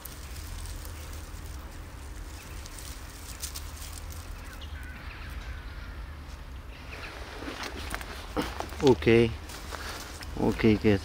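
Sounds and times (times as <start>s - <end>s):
rustling dry leaves: 0.0s - 11.0s.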